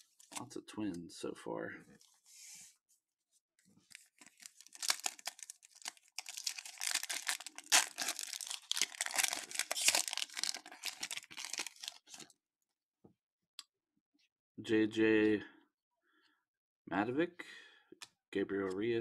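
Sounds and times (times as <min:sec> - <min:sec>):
foil wrapper tearing and crinkling: 0:03.9 - 0:12.3.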